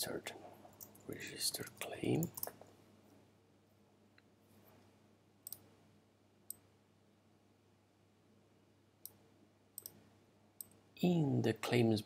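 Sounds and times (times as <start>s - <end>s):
faint room hiss: 0.0s - 12.0s
computer mouse clicks: 5.4s - 5.7s, 9.8s - 10.0s.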